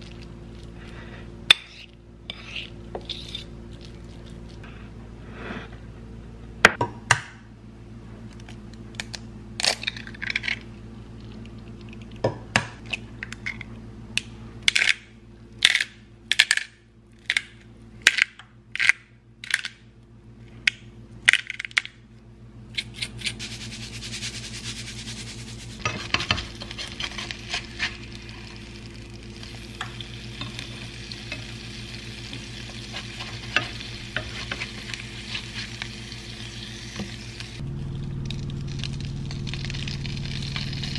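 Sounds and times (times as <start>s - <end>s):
spatula scraping pan: 1.5s - 3.5s, 23.4s - 28.4s, 32.7s - 35.8s
eggs sizzling in frying pan: 23.4s - 37.6s, 38.2s - 40.9s.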